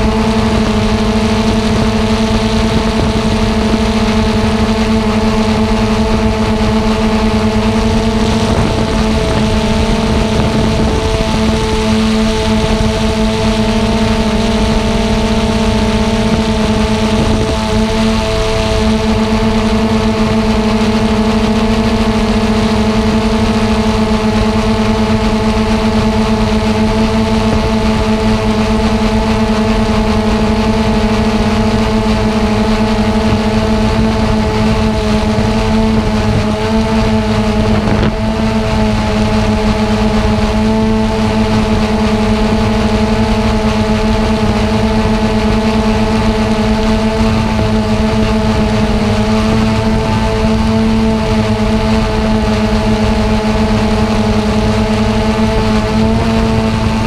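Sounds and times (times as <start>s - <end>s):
drone propellers droning: 0.0s - 57.0s.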